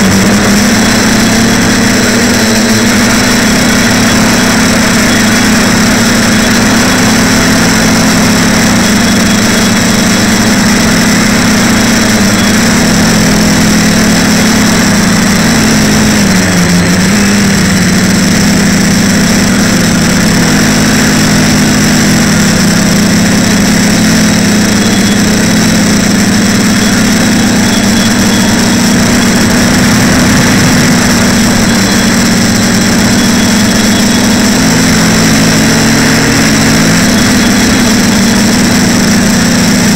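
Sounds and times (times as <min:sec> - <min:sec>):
quadcopter motors humming: 0:00.0 - 0:39.9.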